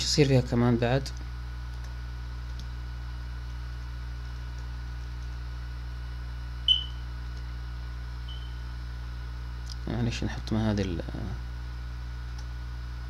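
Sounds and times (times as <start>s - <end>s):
low electrical hum: 0.0s - 13.0s
short high-pitched beep: 6.7s - 7.0s, 8.3s - 8.6s.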